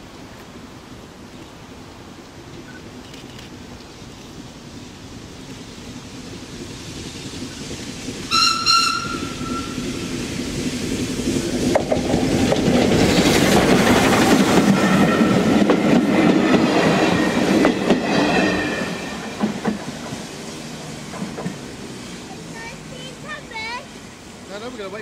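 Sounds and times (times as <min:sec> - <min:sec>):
steam locomotive passing: 0:00.0 - 0:25.0
wheels clattering on rails: 0:01.3 - 0:25.0
steam locomotive whistle: 0:08.3 - 0:10.1.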